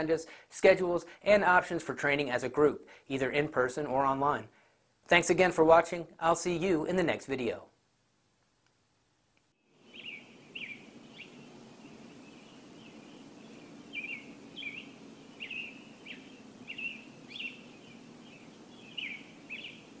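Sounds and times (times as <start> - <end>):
steady low hum: 8.9 - 20.0
small birds chirping: 9.6 - 20.0.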